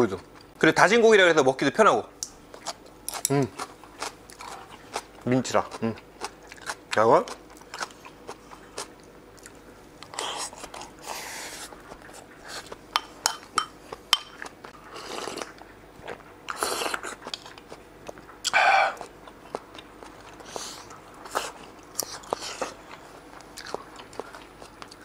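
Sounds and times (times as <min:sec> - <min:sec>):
person chewing: 0:02.5 - 0:25.0
chopsticks clicking against bowls: 0:03.1 - 0:03.4
person sipping soup: 0:18.5 - 0:19.1.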